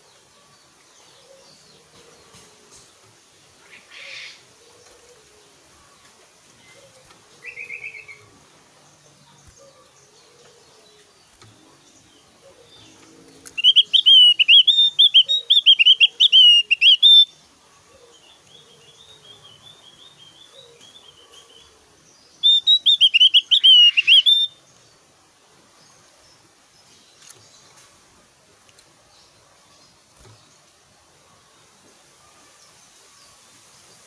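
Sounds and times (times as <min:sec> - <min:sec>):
bird singing warbled notes: 0:12.6 - 0:17.4, 0:22.4 - 0:24.6.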